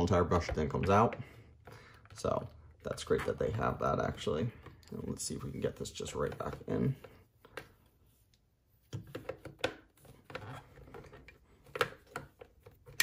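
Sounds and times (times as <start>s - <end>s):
plastic parts clicking and scraping: 8.9s - 13.0s.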